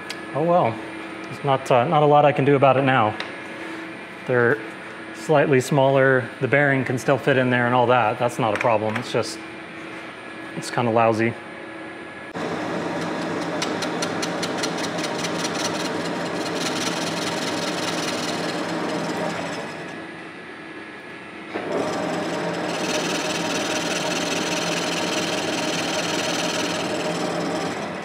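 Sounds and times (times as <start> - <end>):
lathe tool scraping metal: 12.4 - 20.0, 21.6 - 28.0.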